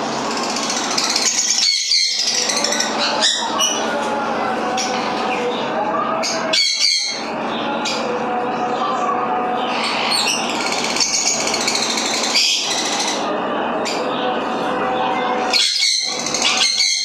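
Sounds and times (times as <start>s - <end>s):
parrots squawking: 0.2s - 4.1s, 6.1s - 8.1s, 9.6s - 13.3s, 15.4s - 17.0s.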